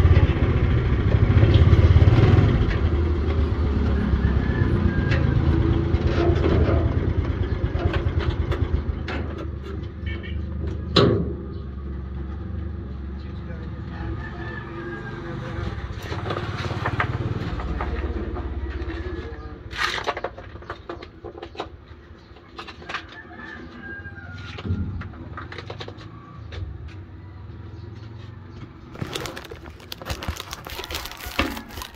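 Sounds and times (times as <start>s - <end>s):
motorcycle engine running: 0.0s - 4.2s.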